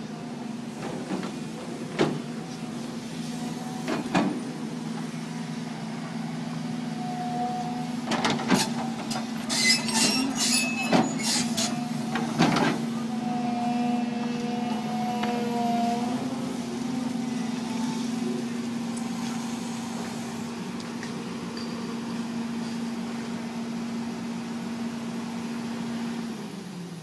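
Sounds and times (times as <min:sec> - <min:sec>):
excavator engine running: 0:00.0 - 0:27.0
hydraulic whine: 0:06.5 - 0:22.8.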